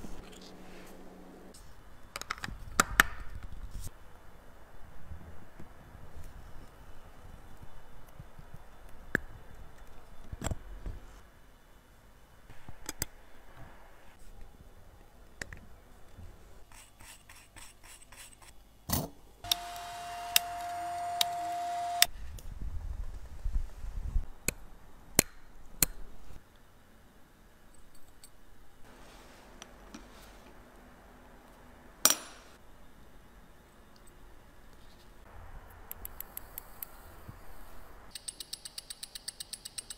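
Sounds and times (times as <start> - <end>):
small machine whining: 19.4 - 22.1
metal tool clicks and taps: 38.1 - 39.9.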